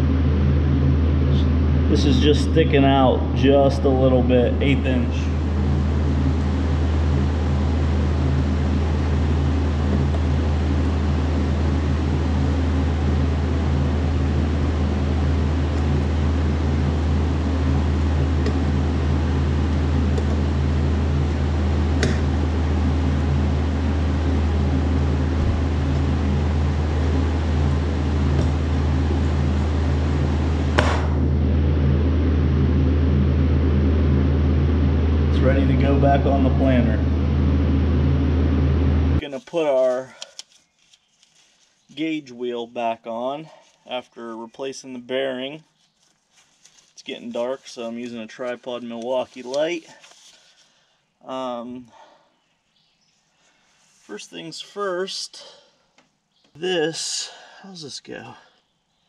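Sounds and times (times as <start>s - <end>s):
machinery humming: 0.0s - 40.2s.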